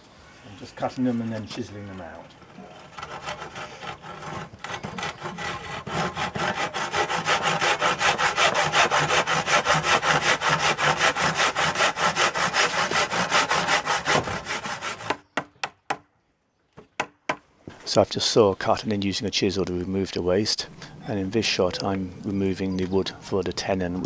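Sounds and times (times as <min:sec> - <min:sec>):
handsaw cutting wood: 0:02.7 - 0:15.2.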